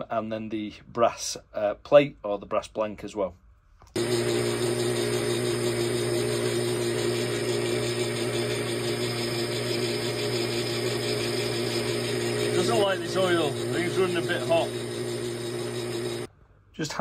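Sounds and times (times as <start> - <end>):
lathe cutting steel: 4.0 - 16.3
metal lathe motor humming: 4.0 - 16.3.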